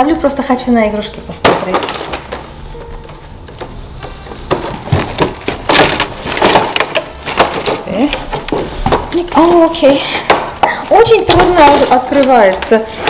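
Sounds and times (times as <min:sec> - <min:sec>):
cardboard box crackling: 0:01.8 - 0:09.8, 0:11.0 - 0:13.0.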